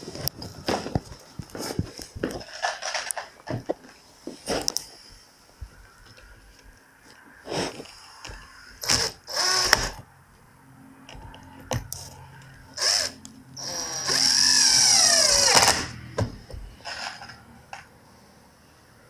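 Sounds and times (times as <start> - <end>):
cordless drill drilling into metal: 8.8 - 10.0, 12.8 - 16.0.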